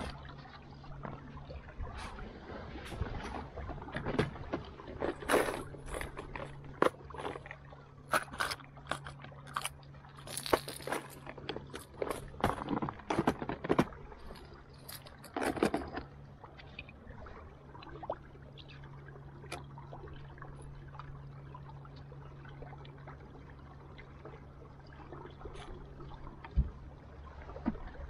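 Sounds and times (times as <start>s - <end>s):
faint water trickles: 0.0s - 13.1s, 13.9s - 28.0s
steady low hum: 0.0s - 28.0s.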